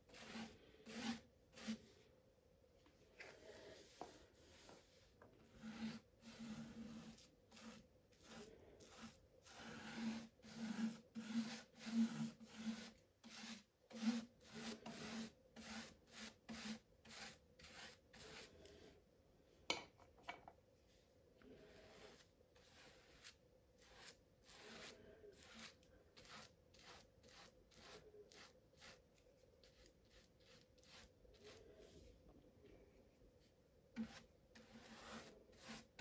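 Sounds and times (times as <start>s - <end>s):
paintbrush rubbing over resin drills: 0.0s - 2.0s, 3.2s - 18.9s, 21.6s - 32.2s, 34.0s - 36.0s.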